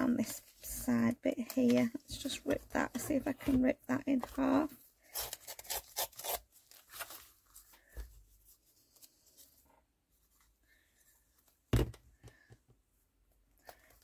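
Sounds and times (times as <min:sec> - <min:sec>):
paper tearing and rustling: 0:05.1 - 0:07.4.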